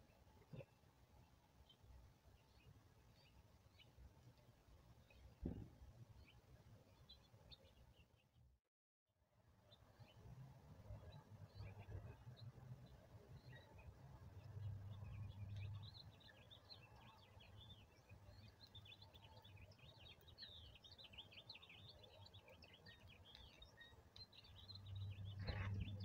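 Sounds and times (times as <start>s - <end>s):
small birds chirping: 0.0s - 8.4s, 9.6s - 26.0s
brief thump: 5.4s - 5.8s
low rumble: 25.0s - 26.0s.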